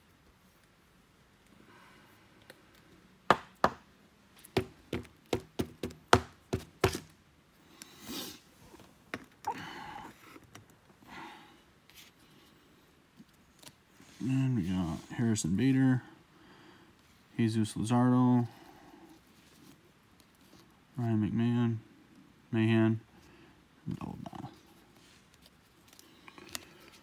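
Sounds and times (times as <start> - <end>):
sharp taps and knocks on table: 3.3 - 3.8.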